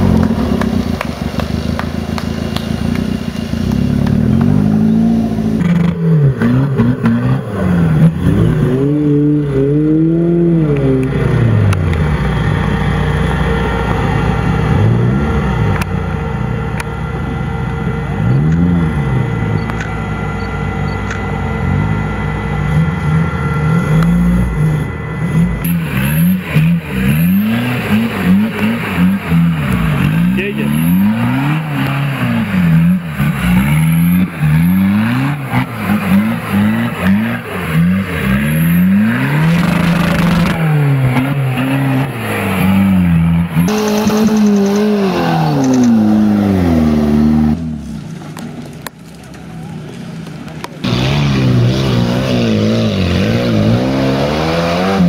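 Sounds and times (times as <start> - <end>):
off-road engines revving: 0.0 - 55.0.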